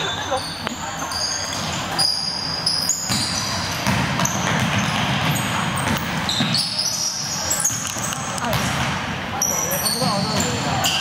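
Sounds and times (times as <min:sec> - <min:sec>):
sneakers squeaking: 0:00.0 - 0:11.0
steady hall noise: 0:00.0 - 0:11.0
basketball bouncing: 0:02.9 - 0:06.8, 0:07.6 - 0:09.1.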